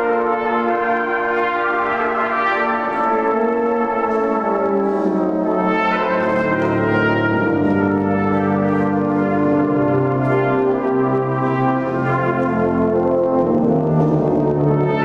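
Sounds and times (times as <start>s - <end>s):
brass band accompaniment: 0.0s - 15.0s
low brass bass notes: 0.0s - 15.0s.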